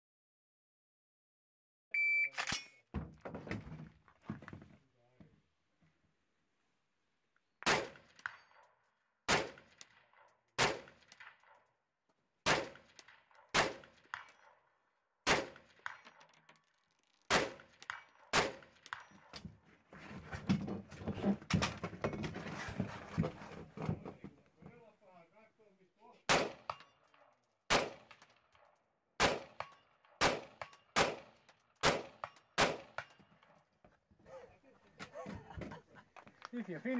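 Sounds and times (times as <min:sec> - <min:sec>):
rifle shots with echo: 0:07.6 - 0:08.4, 0:09.3 - 0:11.5, 0:12.4 - 0:14.3, 0:15.2 - 0:16.0, 0:17.3 - 0:19.1, 0:26.3 - 0:26.9, 0:27.7 - 0:28.2, 0:29.2 - 0:33.1
small knocks and rattles: 0:15.9 - 0:24.4.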